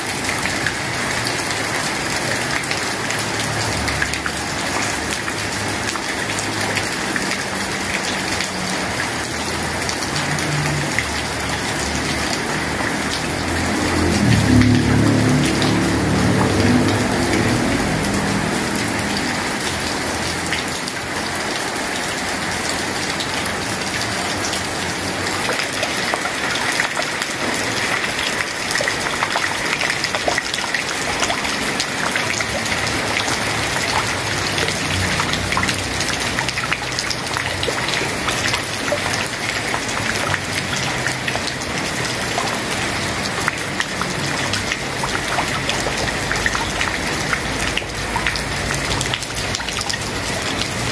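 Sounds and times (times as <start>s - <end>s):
rain on tiles and pond: 0.0s - 50.9s
close raindrop taps: 14.6s - 20.7s.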